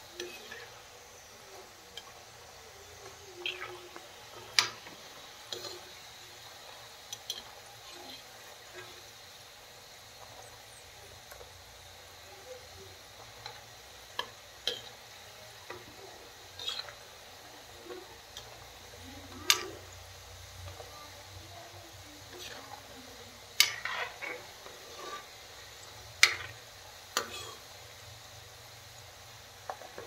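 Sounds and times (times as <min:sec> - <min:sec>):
food deep-frying in oil: 0:00.0 - 0:30.0
metal spoon scraping a pan: 0:00.1 - 0:00.8, 0:03.0 - 0:09.2, 0:13.2 - 0:20.0, 0:22.2 - 0:27.7.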